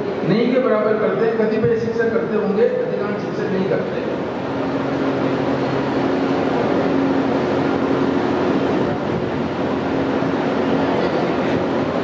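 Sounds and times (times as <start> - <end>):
steady low machine hum: 0.0 - 12.0.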